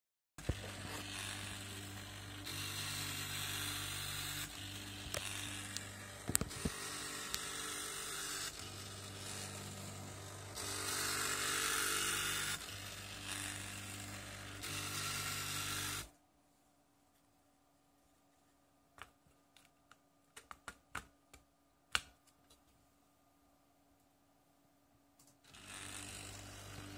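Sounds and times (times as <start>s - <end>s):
stepper motors buzzing: 0.4s - 16.1s, 25.5s - 26.9s.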